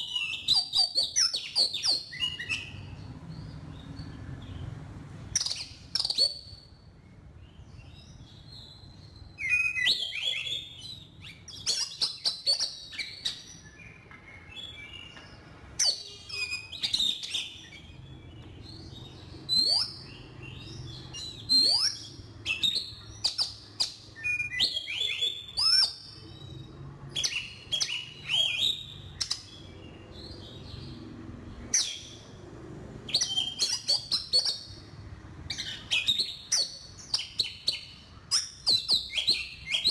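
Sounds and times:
bird singing whistles: 0.0s - 2.9s, 5.4s - 6.7s, 8.5s - 15.1s, 15.8s - 18.9s, 19.5s - 26.2s, 27.1s - 29.6s, 33.1s - 34.8s, 35.5s - 39.9s.

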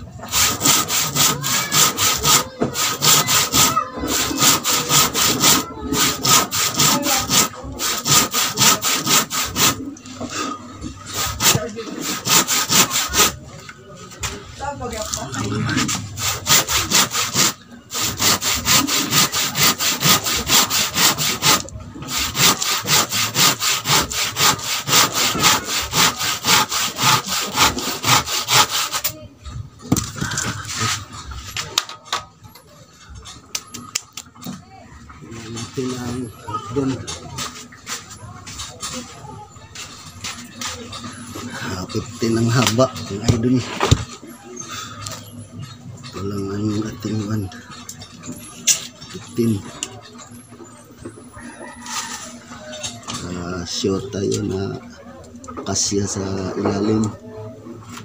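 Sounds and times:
hand saw cutting wood: 0.2s - 9.9s, 11.0s - 13.4s, 15.1s - 29.2s.

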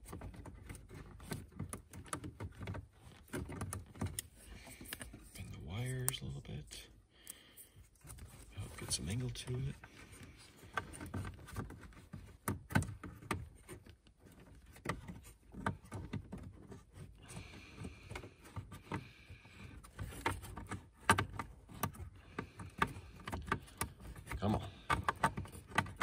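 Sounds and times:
plastic connector clicks and rustles: 0.0s - 6.3s.

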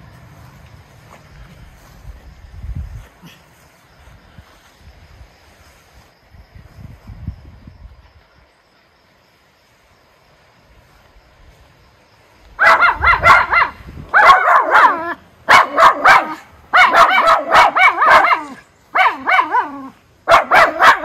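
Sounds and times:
dogs barking high-pitched: 12.6s - 21.0s.

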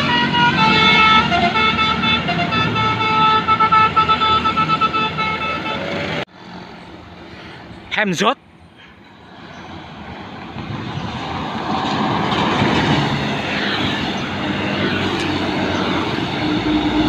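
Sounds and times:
coach diesel engine passing: 0.0s - 17.0s
road noise: 0.0s - 17.0s.

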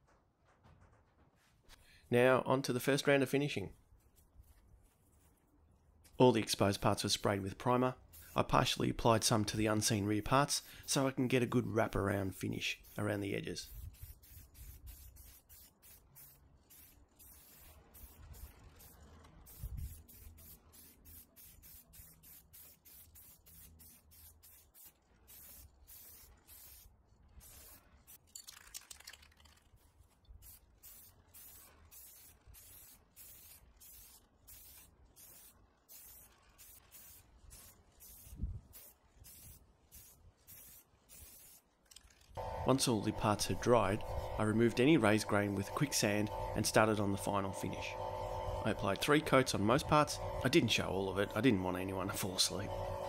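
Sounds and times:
aerosol spray hiss: 13.6s - 27.8s, 30.4s - 41.6s.

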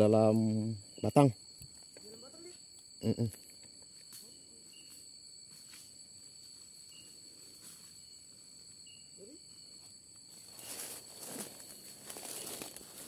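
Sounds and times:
night insects trilling: 0.0s - 13.0s
short high insect chirp: 0.0s - 13.0s
vegetation rustling: 9.7s - 13.0s.

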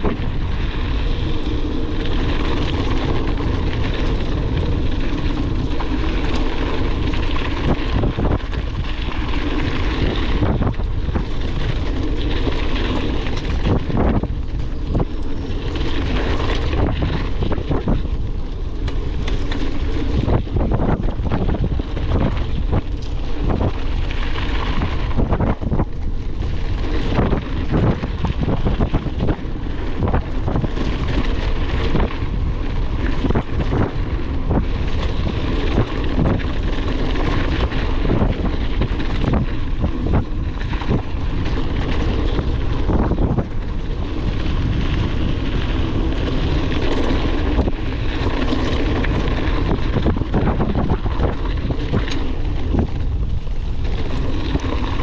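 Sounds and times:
bike rattling and knocking: 0.0s - 55.0s
wind buffeting microphone: 0.0s - 55.0s.

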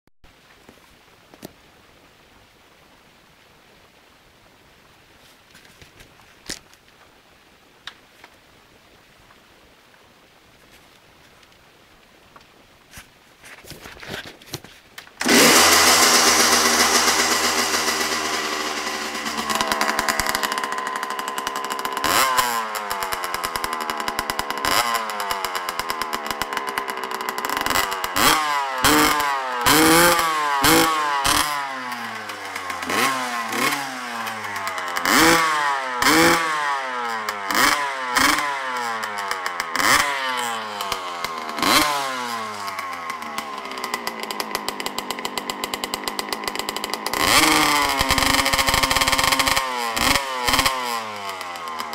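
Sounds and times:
engine kick-start strokes: 15.2s - 36.4s, 37.5s - 51.9s
two-stroke engine revving: 15.2s - 51.9s.

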